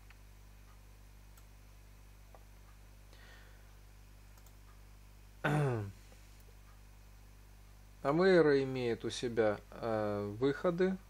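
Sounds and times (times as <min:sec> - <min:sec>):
low steady hum: 0:00.0 - 0:11.0
computer mouse clicks: 0:04.3 - 0:04.8
man's hesitation sound: 0:05.4 - 0:06.0.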